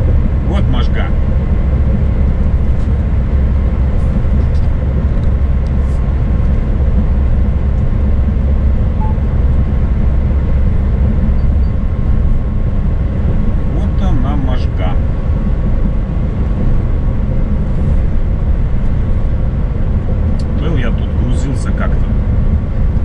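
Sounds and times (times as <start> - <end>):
truck engine and road rumble: 0.0 - 23.0.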